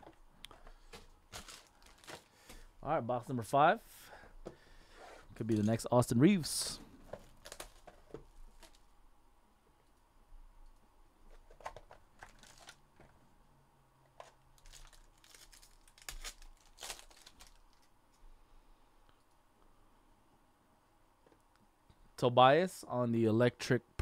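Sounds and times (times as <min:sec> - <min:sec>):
card packaging tearing and crinkling: 0:00.9 - 0:02.3, 0:07.2 - 0:08.8, 0:11.6 - 0:12.8, 0:14.6 - 0:17.9.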